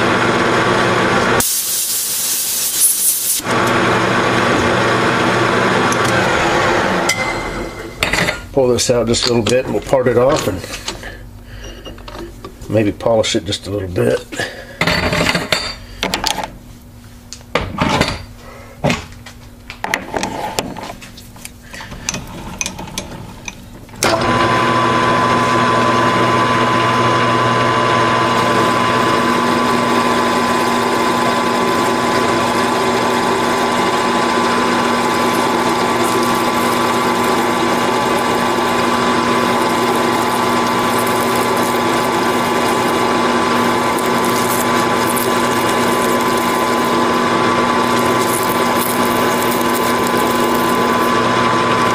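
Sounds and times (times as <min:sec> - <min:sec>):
metal lathe running: 0:24.1 - 0:51.9
gear whine: 0:28.4 - 0:51.9.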